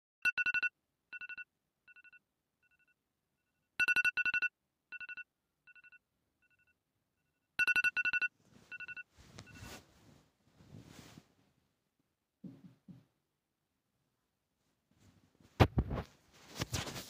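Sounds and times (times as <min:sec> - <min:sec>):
electronic alarm beeping: 0:03.8 - 0:06.7, 0:07.6 - 0:09.8
bedding rustling: 0:08.4 - 0:11.8, 0:14.6 - 0:17.0.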